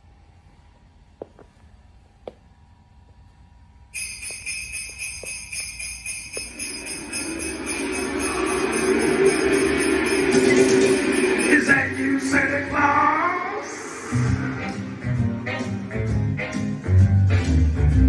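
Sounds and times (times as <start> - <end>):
sleigh bells jingling: 3.9 - 12.7
band backing track: 14.2 - 18.0.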